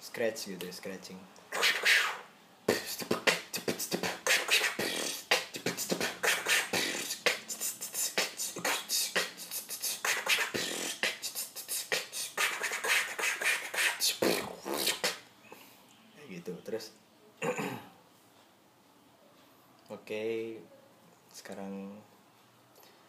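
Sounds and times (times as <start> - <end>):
person beatboxing: 1.5 - 15.2.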